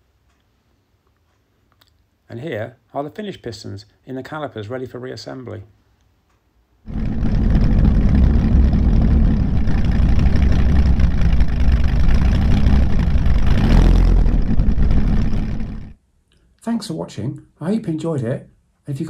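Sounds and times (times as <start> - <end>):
motorcycle engine running: 6.9 - 16.0.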